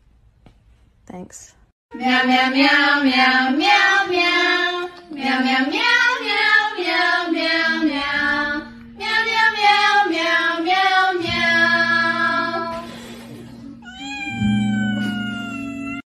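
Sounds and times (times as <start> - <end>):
breath blowing out candles: 12.7 - 13.6
cat meowing: 13.8 - 16.0
person singing meows: 13.8 - 16.0.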